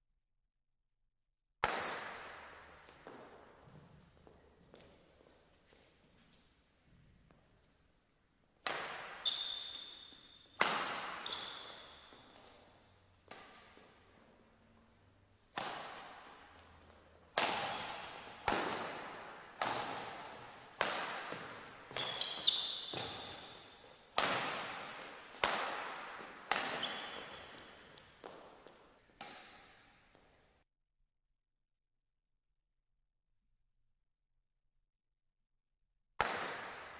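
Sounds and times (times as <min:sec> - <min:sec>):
rackets hitting shuttlecock: 0:01.6 - 0:03.9, 0:08.6 - 0:30.0, 0:36.2 - 0:36.9
court shoes squeaking: 0:01.6 - 0:06.4, 0:08.7 - 0:30.4, 0:36.2 - 0:36.9.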